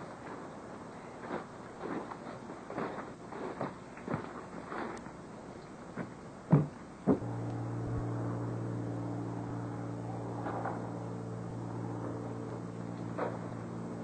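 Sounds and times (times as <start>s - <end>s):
small engine idling: 7.2s - 14.0s.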